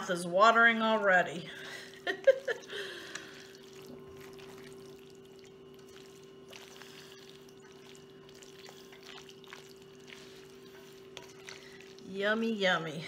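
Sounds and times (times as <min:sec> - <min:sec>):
steady low hum: 0:00.0 - 0:13.0
pasta salad squishing when stirred: 0:01.5 - 0:13.0.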